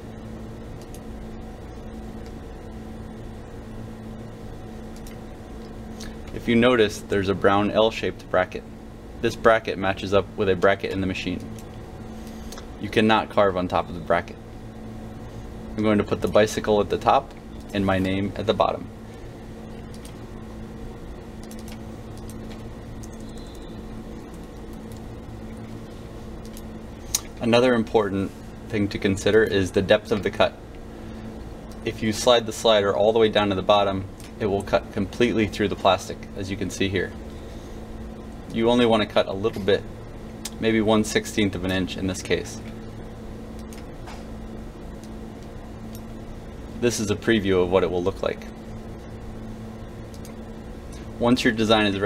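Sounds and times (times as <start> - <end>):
low electrical hum: 0.0 - 52.0
laptop keyboard clicks: 21.4 - 23.3.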